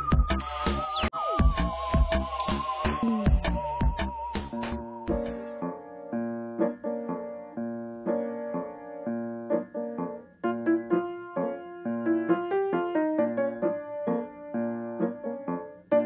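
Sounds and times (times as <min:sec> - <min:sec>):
piano music: 0:04.0 - 0:16.0.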